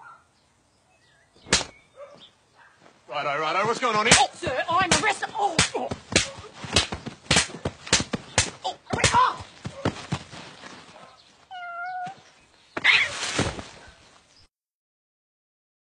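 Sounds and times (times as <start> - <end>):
punches landing: 1.4 - 1.8, 3.6 - 10.5.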